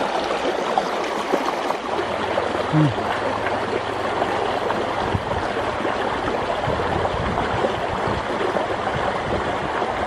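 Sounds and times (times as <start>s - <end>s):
stream flowing through culvert: 0.0s - 10.0s.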